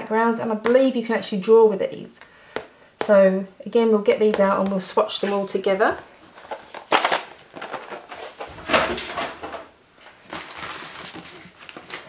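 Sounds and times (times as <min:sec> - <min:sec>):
packaging rustling and bumping: 0:04.4 - 0:12.0.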